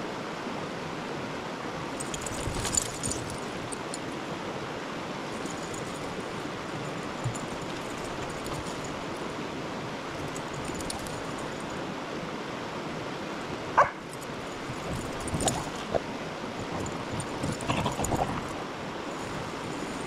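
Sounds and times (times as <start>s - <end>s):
shallow stream rushing: 0.0s - 20.0s
dog yipping: 13.8s - 14.0s.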